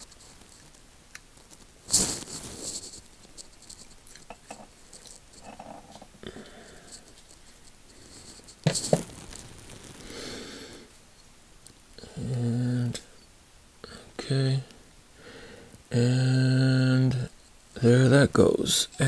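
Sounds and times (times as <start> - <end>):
small metal clicks and scrapes: 0.0 - 6.1.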